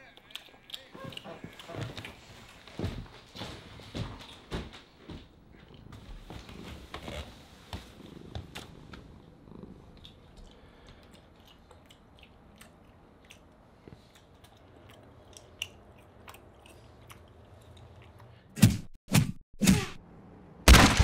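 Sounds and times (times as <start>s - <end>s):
chewing: 0.0s - 2.8s, 8.2s - 18.5s.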